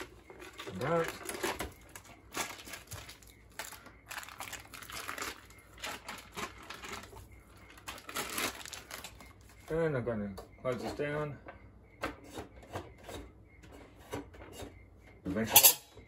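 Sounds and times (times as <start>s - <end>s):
foil wrapper crinkling: 0.0s - 9.7s.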